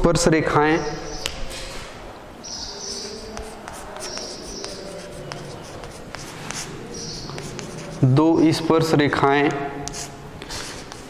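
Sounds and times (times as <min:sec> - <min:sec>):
high-pitched chalk scrapes: 0:02.5 - 0:08.6, 0:09.9 - 0:11.0
chalk writing on blackboard: 0:02.7 - 0:08.6, 0:09.8 - 0:11.0.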